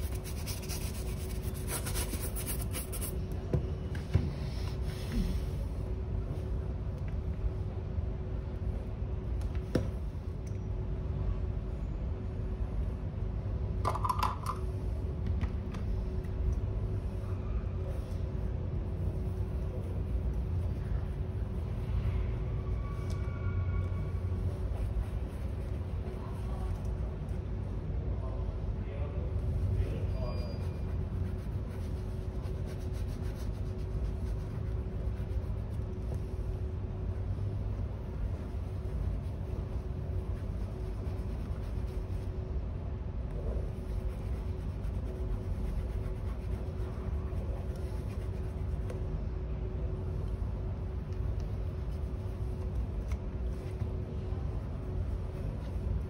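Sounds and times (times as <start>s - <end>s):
hand rubbing leather shoe: 0.0s - 3.3s, 30.3s - 36.5s, 37.9s - 42.4s, 43.4s - 49.0s
low background hum: 0.0s - 56.0s
low background rumble: 0.0s - 56.0s.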